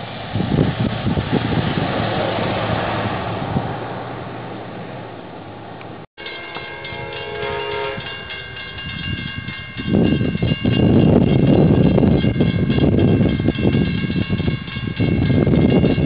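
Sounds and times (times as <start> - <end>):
train rumbling: 0.0 - 16.0
train horn chord: 6.2 - 8.9.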